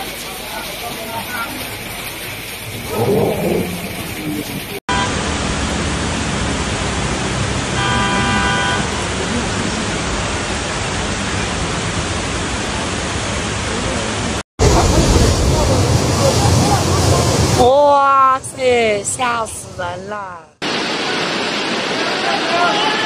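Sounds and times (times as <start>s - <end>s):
heavy rain hissing: 0.0s - 17.7s, 20.6s - 23.0s
car horn: 4.9s - 5.3s, 7.7s - 9.1s.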